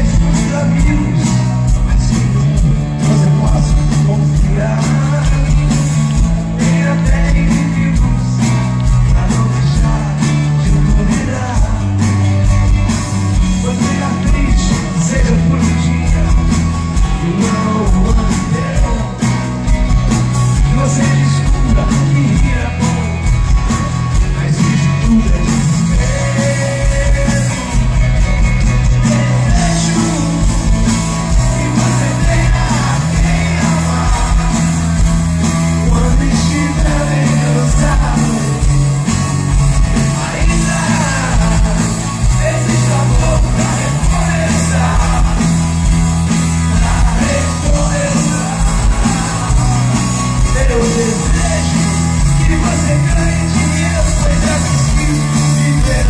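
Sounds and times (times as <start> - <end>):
live rock band: 0.0 - 56.0
person singing: 13.3 - 19.5, 24.1 - 56.0.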